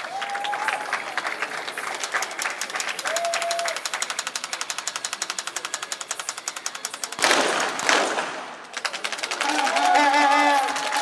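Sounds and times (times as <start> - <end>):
fast even ticking: 3.7 - 11.0
pistol shots: 7.2 - 9.0.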